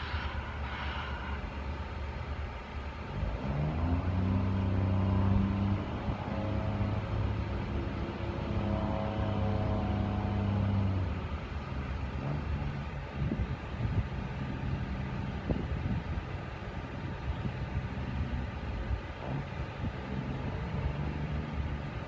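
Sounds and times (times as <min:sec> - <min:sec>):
heavy diesel engine revving: 0:00.0 - 0:22.0
low rumble: 0:00.0 - 0:22.0.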